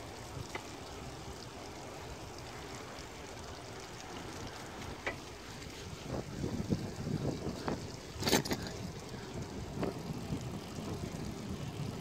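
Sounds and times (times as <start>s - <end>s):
bicycle tyres hissing on wet asphalt: 0.0s - 12.0s
wind on microphone: 5.7s - 12.0s.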